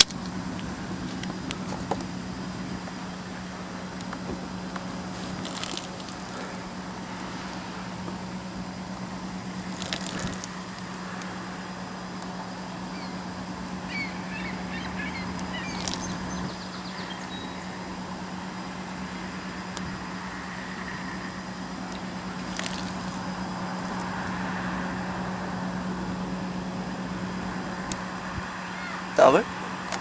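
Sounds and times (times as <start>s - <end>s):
steady hiss: 0.0s - 14.3s
low hum: 0.0s - 30.0s
birds chirping: 0.7s - 24.2s, 27.7s - 29.5s.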